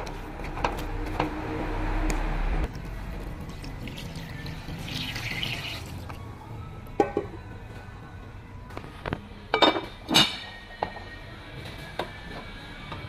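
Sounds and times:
water pouring into pot: 2.7 - 6.2.

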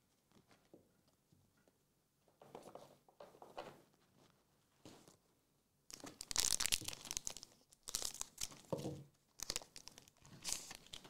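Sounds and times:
foil pack tearing and crinkling: 5.9 - 8.6, 9.4 - 11.0.

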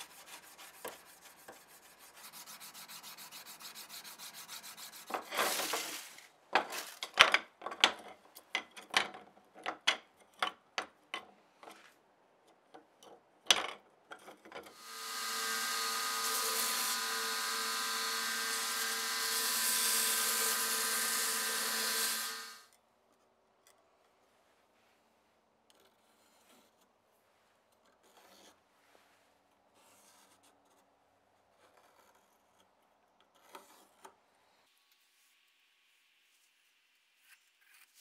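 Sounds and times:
belt grinder running: 14.8 - 22.6.

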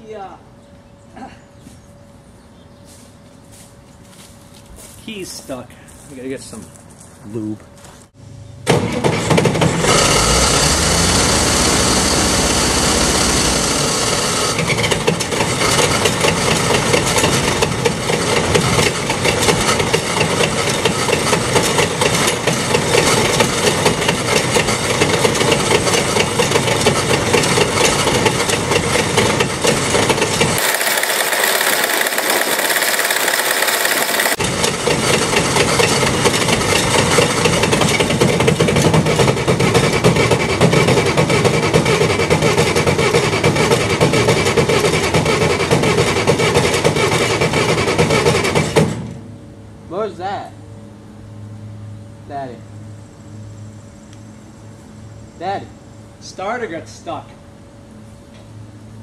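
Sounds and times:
tractor engine running: 8.7 - 49.0
starter motor cranking: 9.0 - 38.9.

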